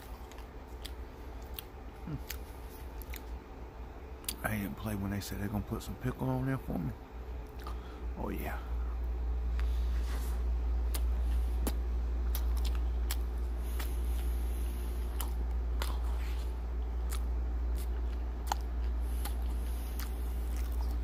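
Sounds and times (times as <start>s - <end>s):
mouth chewing with wet clicks: 0.0s - 3.4s, 4.2s - 4.5s, 7.4s - 7.8s, 10.8s - 21.0s
steady low hum: 0.0s - 21.0s.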